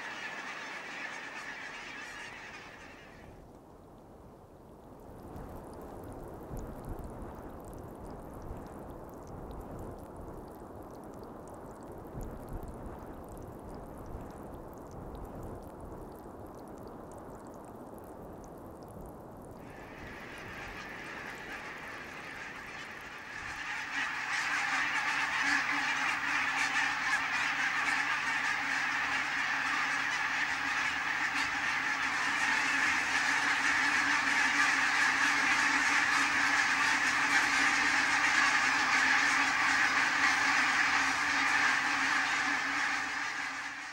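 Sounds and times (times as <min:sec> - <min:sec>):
flock of geese honking: 0:00.0 - 0:03.3, 0:19.7 - 0:43.9
quiet low rush: 0:19.5 - 0:43.9.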